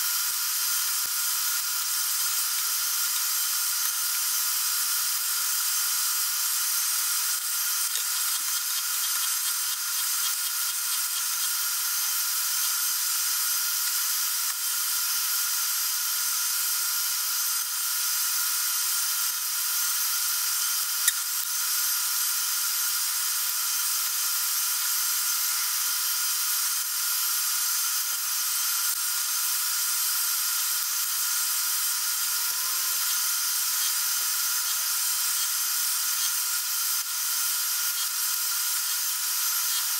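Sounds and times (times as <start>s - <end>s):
milling machine whining: 0.0s - 39.9s.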